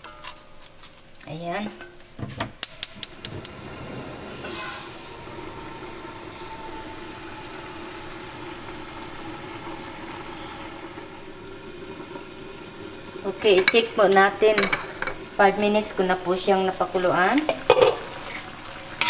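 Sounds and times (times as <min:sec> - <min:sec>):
steady hum: 0:02.7 - 0:17.2.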